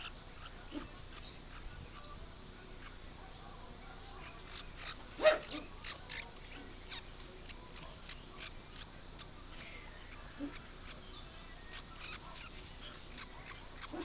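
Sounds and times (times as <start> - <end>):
parrot chick cheeping: 4.2 - 14.0.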